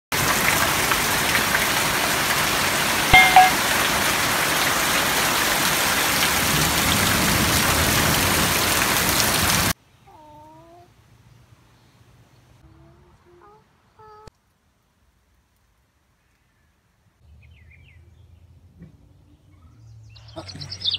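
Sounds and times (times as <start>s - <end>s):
heavy rain pouring: 0.1s - 9.8s
short tone: 3.1s - 3.7s.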